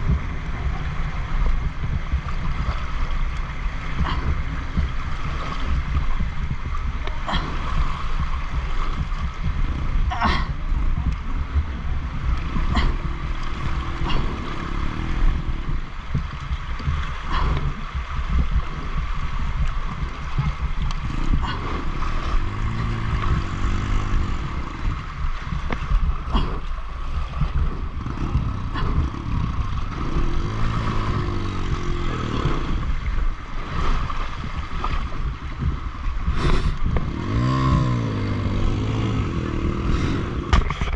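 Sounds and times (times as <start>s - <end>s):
river water rushing: 0.0s - 40.9s
dirt bike engine revving: 12.5s - 16.0s, 22.0s - 25.6s, 27.8s - 33.0s, 37.0s - 40.7s.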